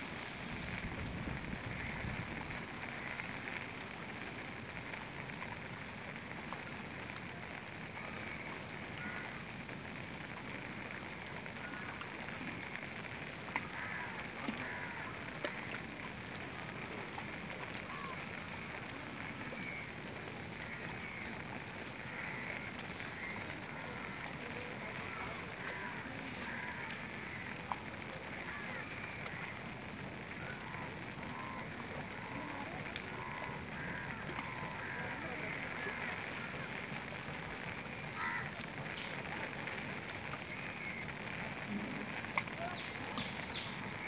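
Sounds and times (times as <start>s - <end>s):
wind and water hiss: 0.0s - 44.0s
faint voices: 6.2s - 44.0s.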